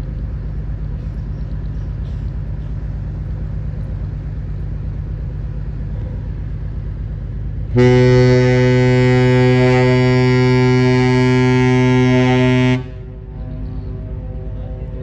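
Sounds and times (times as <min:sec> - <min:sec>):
low rumble: 0:00.0 - 0:15.0
deep ship horn blast: 0:07.7 - 0:13.6.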